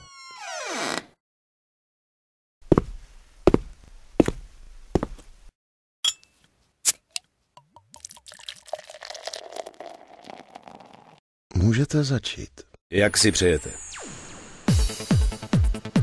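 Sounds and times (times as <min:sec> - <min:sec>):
heavy footsteps on carpet: 0:02.6 - 0:05.3.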